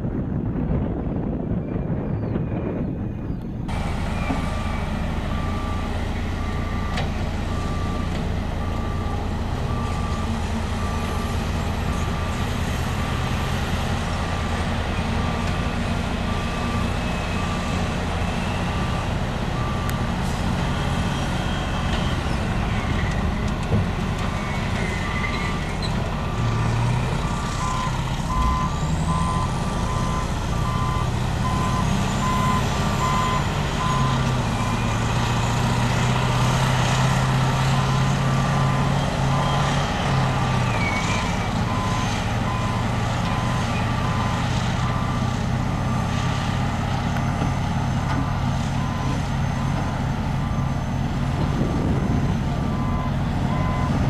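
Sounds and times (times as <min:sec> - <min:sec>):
diesel engines droning: 0:00.0 - 0:54.0
reversing alarm beeping: 0:24.2 - 0:35.6, 0:48.7 - 0:54.0.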